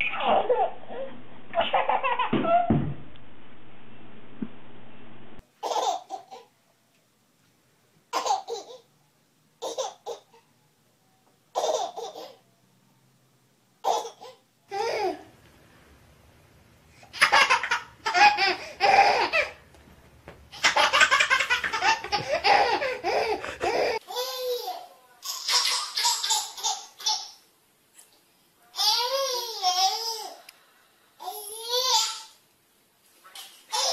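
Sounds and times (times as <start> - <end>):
baby laughing: 0.0 - 2.7, 5.6 - 6.5, 9.6 - 10.4, 11.5 - 12.4, 13.8 - 15.2, 17.0 - 19.6, 20.5 - 27.4, 33.7 - 33.9.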